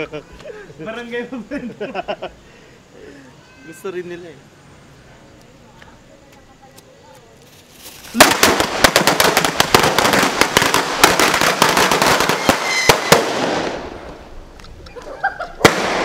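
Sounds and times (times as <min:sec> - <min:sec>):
firecrackers crackling: 0:06.3 - 0:16.0
sharp firecracker bang: 0:08.1 - 0:14.2, 0:15.6 - 0:16.0.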